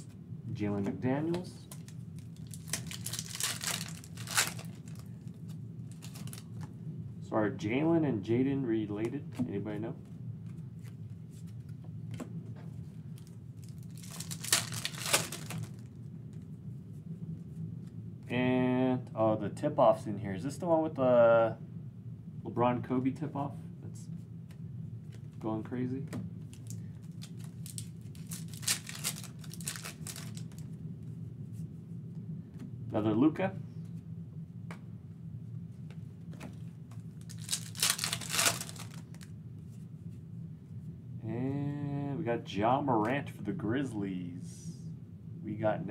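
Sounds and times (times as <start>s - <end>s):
foil wrapper tearing and crinkling: 1.7s - 5.1s, 5.9s - 6.4s, 13.2s - 15.9s, 26.6s - 30.6s, 37.2s - 39.3s.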